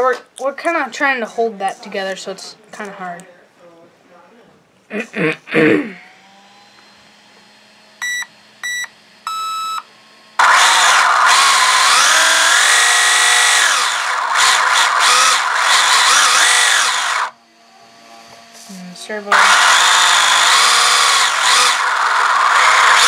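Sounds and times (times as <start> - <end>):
electric motor and gear whir: 6.0 - 23.0
short electronic beeps: 8.0 - 9.8.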